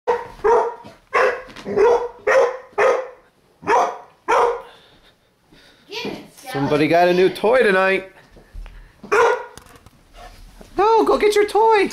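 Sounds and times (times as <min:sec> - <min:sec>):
large dog barking: 0:00.1 - 0:04.7, 0:09.1 - 0:09.6.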